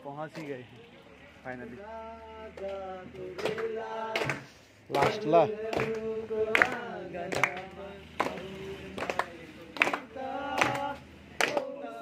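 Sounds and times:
group of voices chanting: 1.8s - 12.0s
hand claps on a steady beat: 2.6s - 11.8s.

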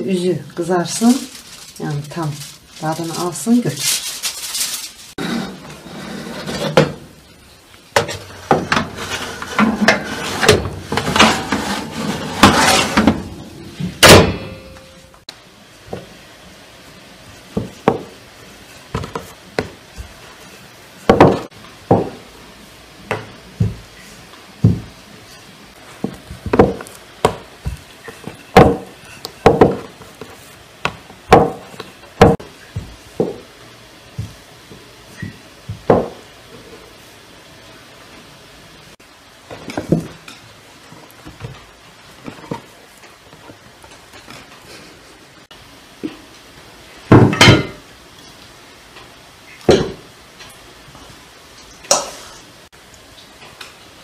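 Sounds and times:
metal baking tray clattering: 8.0s - 13.3s
loud metal clang: 14.0s - 15.1s
rolling pin knocking on board: 21.1s - 22.2s, 28.5s - 29.9s, 35.2s - 36.2s.

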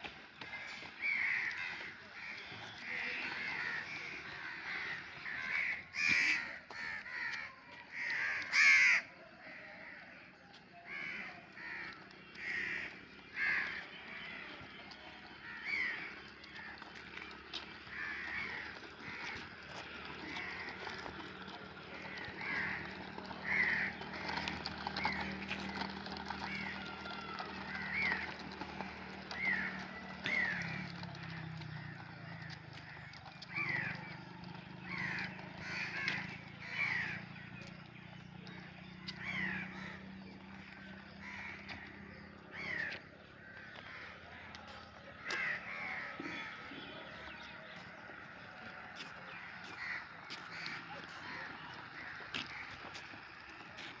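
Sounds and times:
electric motors humming: 0.0s - 8.9s, 10.9s - 54.0s
crows cawing: 0.3s - 10.2s, 10.8s - 37.6s, 38.5s - 53.9s.

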